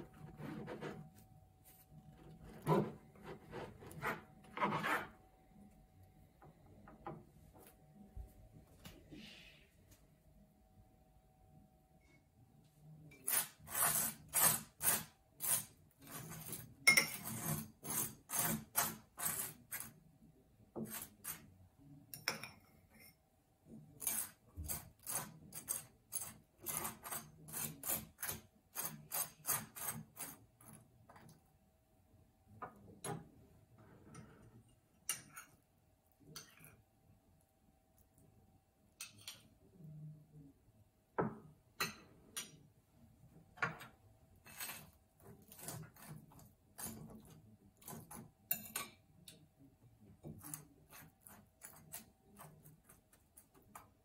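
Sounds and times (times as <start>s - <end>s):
knife scraping butter on toast: 0.0s - 1.2s, 2.1s - 5.2s, 13.1s - 20.0s, 20.8s - 21.5s, 24.0s - 31.4s, 43.7s - 48.9s, 50.2s - 54.0s
spoon scraping a bowl: 0.0s - 5.2s, 13.1s - 20.0s, 20.8s - 23.2s, 23.9s - 31.4s, 32.6s - 36.8s, 39.0s - 39.6s, 43.6s - 49.4s, 50.1s - 54.0s.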